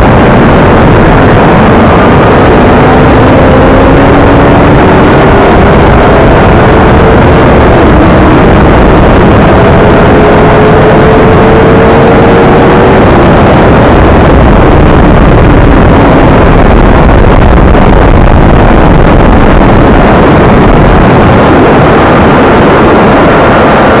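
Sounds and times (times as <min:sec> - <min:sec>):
motorcycle engine: 0:00.0 - 0:17.0, 0:20.0 - 0:24.0
wind rush: 0:00.0 - 0:24.0.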